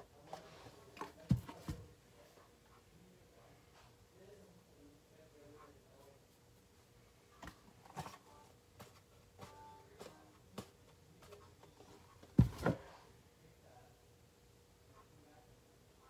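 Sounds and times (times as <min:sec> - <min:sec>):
thump and knock: 0:12.3 - 0:12.8.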